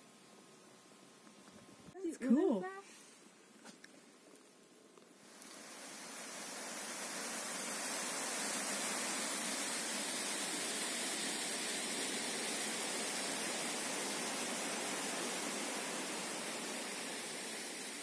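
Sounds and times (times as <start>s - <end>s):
waterfall roaring over rocks: 5.2s - 18.0s.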